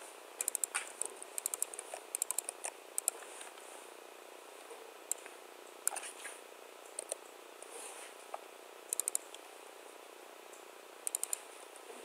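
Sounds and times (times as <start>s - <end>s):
typing on a keyboard: 0.4s - 3.2s, 7.0s - 7.2s, 8.9s - 9.3s, 11.1s - 11.4s.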